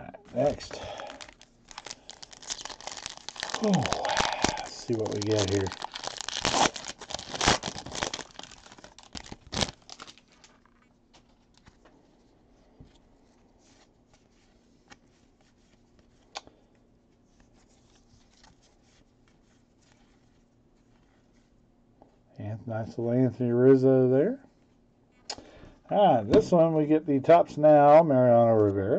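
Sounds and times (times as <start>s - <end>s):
foil wrapper crinkling and tearing: 0.4s - 11.8s
cards rustling and clicking: 0.4s - 12.0s.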